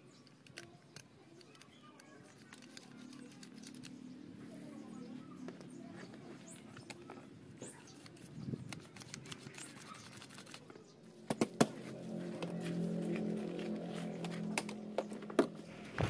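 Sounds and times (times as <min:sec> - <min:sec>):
small parts clicking and clattering: 0:00.1 - 0:04.0.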